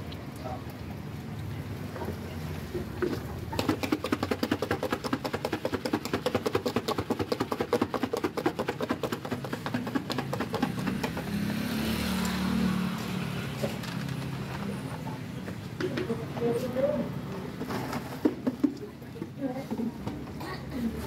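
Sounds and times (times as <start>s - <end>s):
rapid even knocking: 3.6s - 11.6s.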